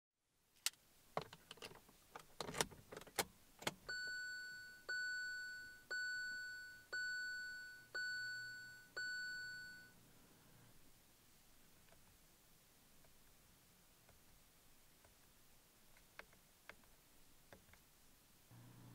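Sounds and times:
car warning chime: 0:03.9 - 0:10.0.

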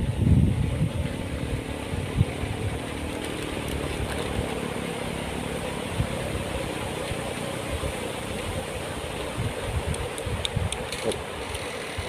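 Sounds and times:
river water rushing: 0:01.2 - 0:10.3.

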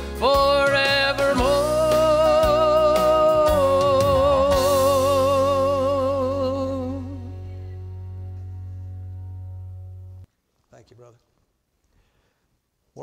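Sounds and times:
man singing with vibrato: 0:00.0 - 0:07.7
instrumental backing: 0:00.0 - 0:10.3.

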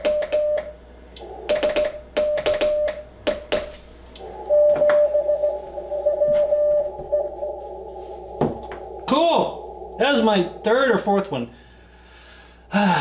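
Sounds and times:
morse code sidetone beeps: 0:00.0 - 0:03.5, 0:04.5 - 0:07.5
radio receiver hiss: 0:04.0 - 0:11.7
incoming morse tone: 0:04.2 - 0:11.6.

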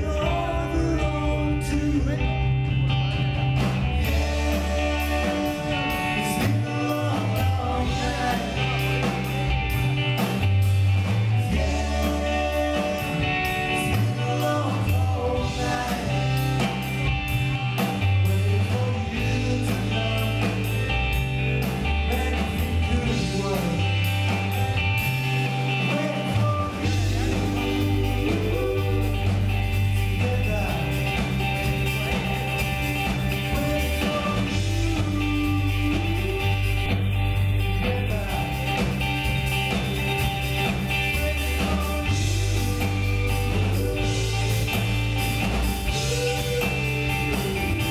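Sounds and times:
lead vocal singing: 0:00.0 - 0:02.7, 0:03.8 - 0:47.9
bass line: 0:00.0 - 0:47.9
live rock band playing: 0:00.0 - 0:47.9.

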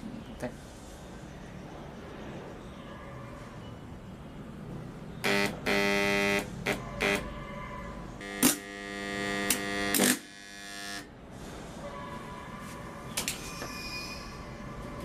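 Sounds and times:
electrical buzz: 0:05.2 - 0:07.3, 0:08.2 - 0:11.2.

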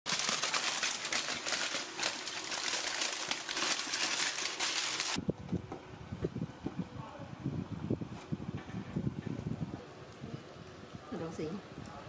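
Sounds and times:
aluminium foil crinkling: 0:00.1 - 0:05.2.

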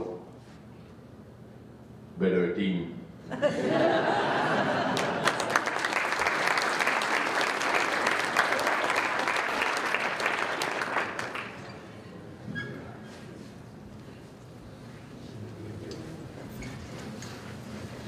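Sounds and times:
audience applauding: 0:04.6 - 0:11.9.

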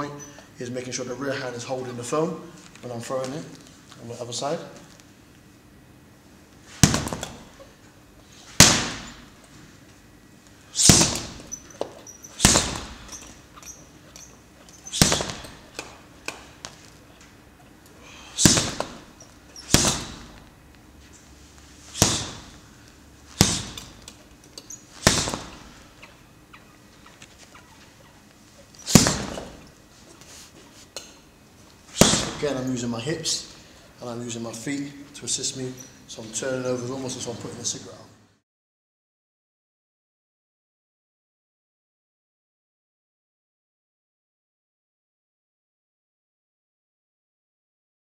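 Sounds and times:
punches thudding on heavy bag: 0:06.7 - 0:07.5, 0:08.6 - 0:09.3, 0:10.8 - 0:13.3, 0:14.8 - 0:16.0, 0:18.2 - 0:20.4, 0:21.9 - 0:22.6, 0:23.3 - 0:24.1, 0:25.0 - 0:25.8, 0:28.8 - 0:29.6, 0:31.9 - 0:32.6.

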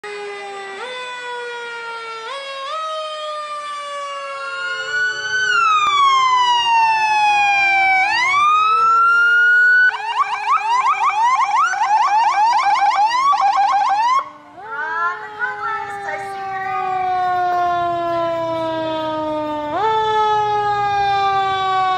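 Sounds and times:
electronic siren wailing and yelping: 0:04.0 - 0:18.7.

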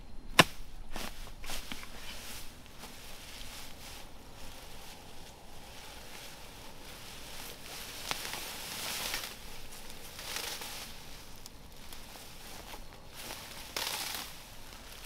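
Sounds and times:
sharp snap: 0:00.3 - 0:00.6
grass rustling and tearing: 0:00.3 - 0:15.0.

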